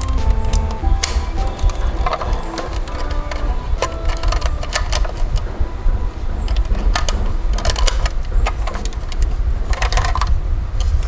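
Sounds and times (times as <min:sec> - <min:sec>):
plastic toy clicks and rattles: 0:00.0 - 0:05.5, 0:06.4 - 0:11.0
steady low rumble: 0:00.0 - 0:11.0.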